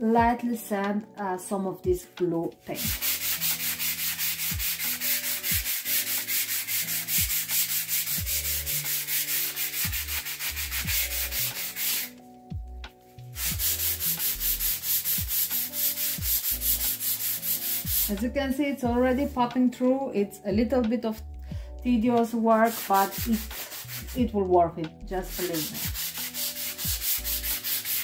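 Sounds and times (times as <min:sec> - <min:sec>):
sanding pad rubbing wood: 0:02.8 - 0:12.1, 0:13.4 - 0:18.1, 0:22.7 - 0:24.2, 0:25.2 - 0:28.0.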